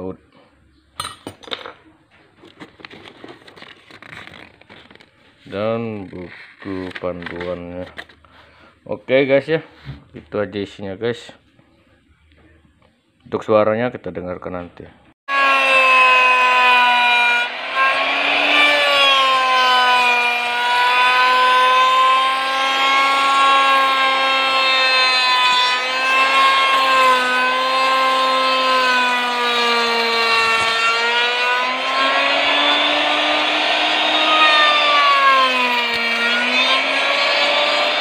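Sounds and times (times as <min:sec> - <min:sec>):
wood router cutting board: 0:15.3 - 0:38.0.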